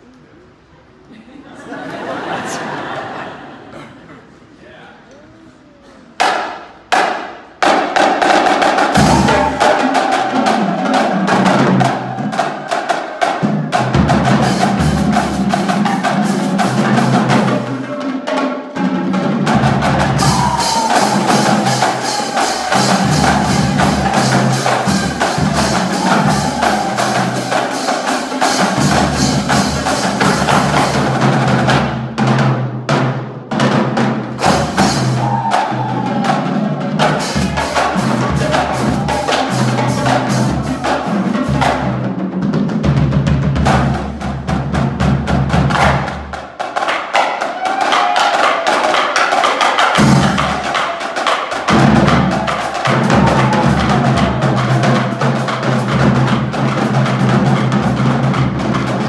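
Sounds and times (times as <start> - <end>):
snare drums: 6.2 - 59.0
bass drums: 9.0 - 9.6, 19.5 - 32.6, 51.7 - 59.0.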